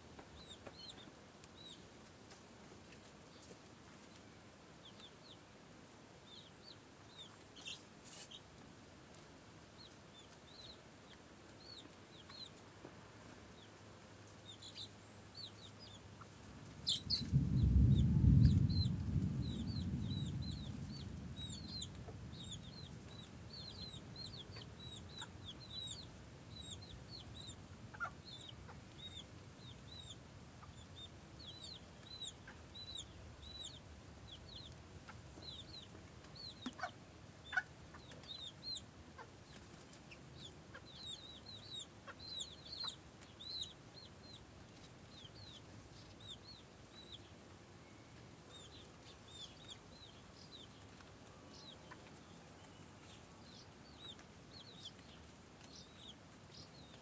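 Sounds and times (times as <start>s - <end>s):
chicks peeping: 0.2s - 2.4s, 4.8s - 5.4s, 6.2s - 57.0s
low rumble: 16.7s - 24.4s
hen clucking: 23.6s - 44.2s.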